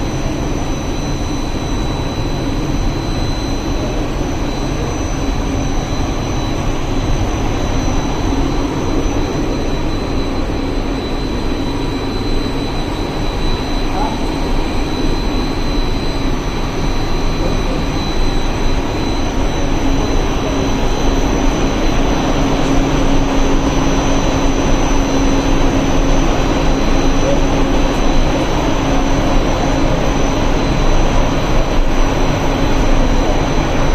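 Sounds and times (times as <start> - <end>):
machinery hum and whir: 0.0 - 33.9
thin whining tones: 0.0 - 33.9.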